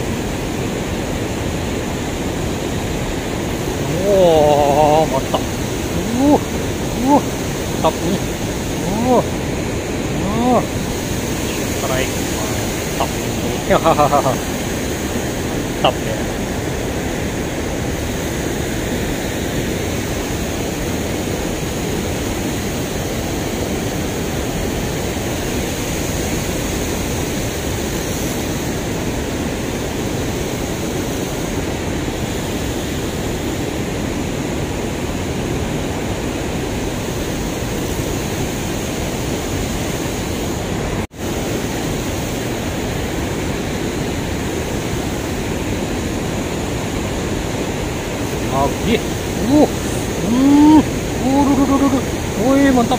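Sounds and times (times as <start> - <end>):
turbulent water rushing: 0.0 - 52.9.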